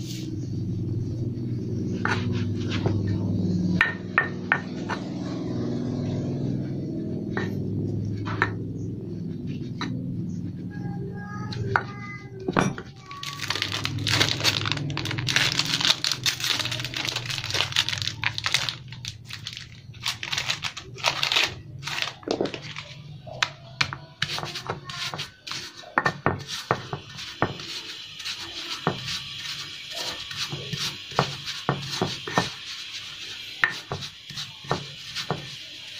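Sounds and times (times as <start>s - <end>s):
stone pestle grinding in mortar: 1.9s - 3.0s, 23.3s - 35.6s
plastic packet crinkling: 13.0s - 23.0s.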